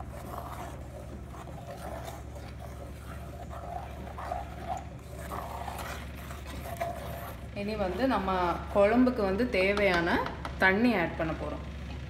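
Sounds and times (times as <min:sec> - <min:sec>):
metal spoon stirring thick curry: 0:00.0 - 0:09.4
spoon scraping pot: 0:00.0 - 0:10.1
steady low hum: 0:00.0 - 0:12.0.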